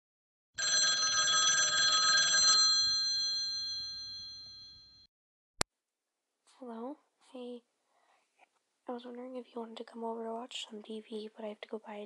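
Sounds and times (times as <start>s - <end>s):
telephone bell ringing: 0.6s - 5.1s.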